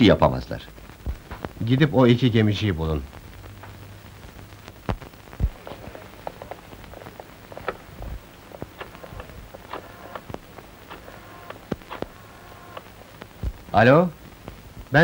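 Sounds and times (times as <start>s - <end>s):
faint clicks and knocks: 4.6s - 13.7s.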